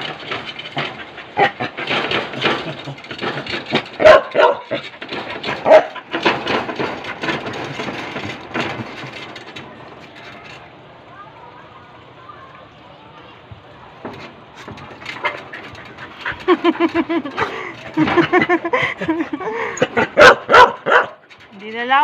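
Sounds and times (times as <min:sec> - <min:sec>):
dog barking: 0:04.0 - 0:04.8, 0:05.6 - 0:06.0, 0:20.1 - 0:21.2.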